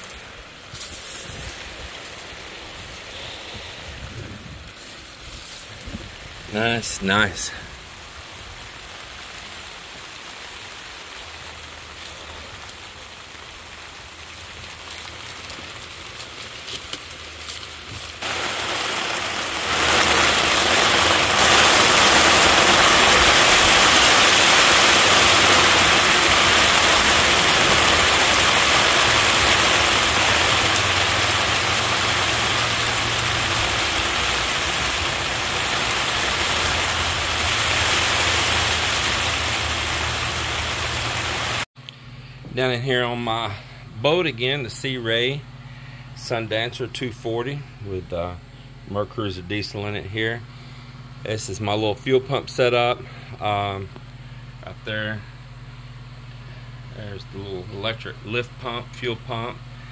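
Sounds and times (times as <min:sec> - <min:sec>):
rain falling: 0:00.0 - 0:41.7.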